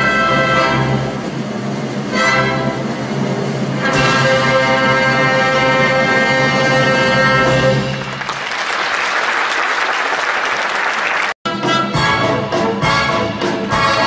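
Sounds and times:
orchestra playing: 0.0 - 8.4, 11.1 - 14.0
audience applauding: 7.8 - 11.4.

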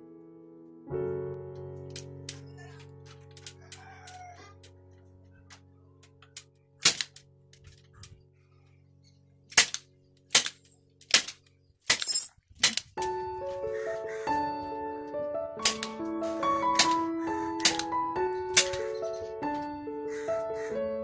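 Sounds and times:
background music: 0.0 - 11.4, 13.0 - 21.0
staple gun snapping: 6.8 - 7.2, 9.5 - 12.0, 17.6 - 17.8.

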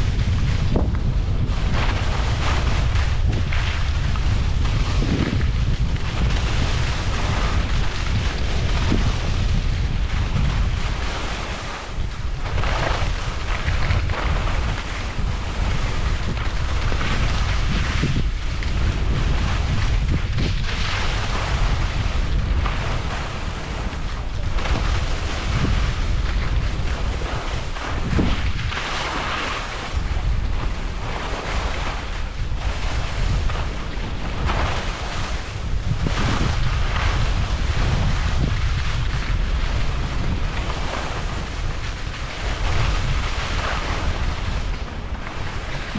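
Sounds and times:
wind buffeting microphone: 0.0 - 45.9
ski edges scraping snow: 0.1 - 9.6, 10.2 - 45.9.

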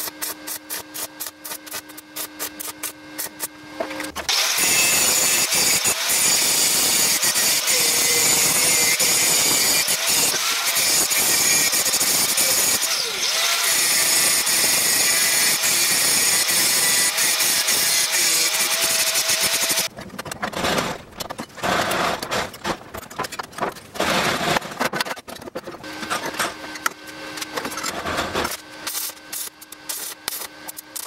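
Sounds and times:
angle grinder grinding steel: 0.0 - 19.9.

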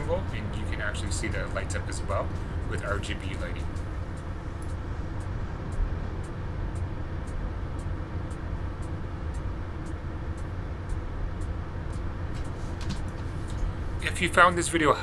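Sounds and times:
computer cooling fans humming: 0.0 - 15.0
faint high ticks: 2.1 - 13.7.

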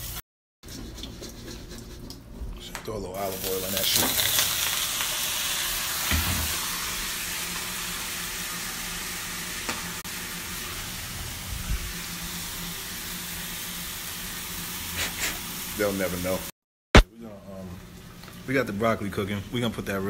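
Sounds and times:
vegetables sizzling in a frying pan: 3.3 - 16.5.

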